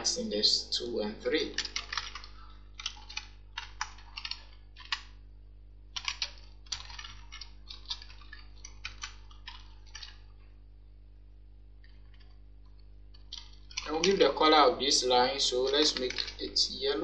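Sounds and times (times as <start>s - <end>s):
keyboard typing: 1.4s - 5.2s, 5.9s - 10.3s, 11.8s - 17.0s.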